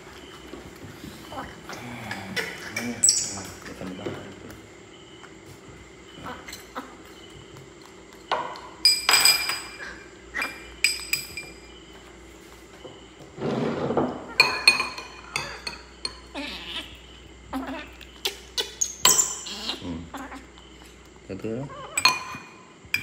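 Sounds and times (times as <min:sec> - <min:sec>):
metal spoon clinking ceramic bowls: 0:08.2 - 0:11.7, 0:14.3 - 0:16.4, 0:19.0 - 0:19.5, 0:21.8 - 0:23.0.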